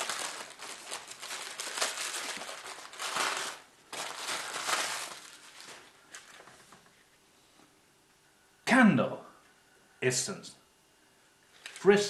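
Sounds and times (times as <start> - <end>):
tissue paper crinkling: 0.0 - 6.6.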